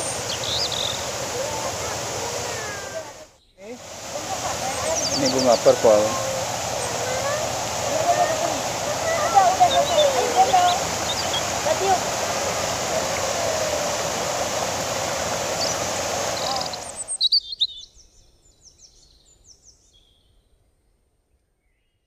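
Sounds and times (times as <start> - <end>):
waterfall rushing: 0.0 - 17.2
high falling bird chirps: 0.0 - 20.2.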